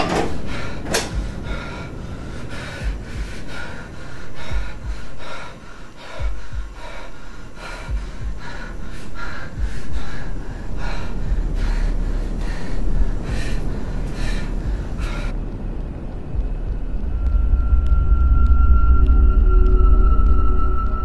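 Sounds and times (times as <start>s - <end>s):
man breathing hard: 0.0s - 15.4s.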